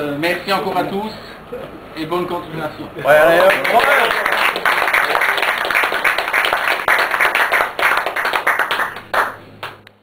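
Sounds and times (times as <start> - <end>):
people clapping: 3.1 - 10.0.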